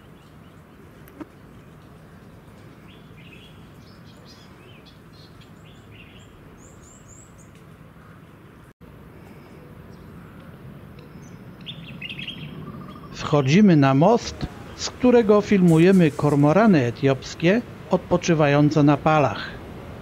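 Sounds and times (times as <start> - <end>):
small birds chirping: 0.0 - 8.2, 9.2 - 15.0.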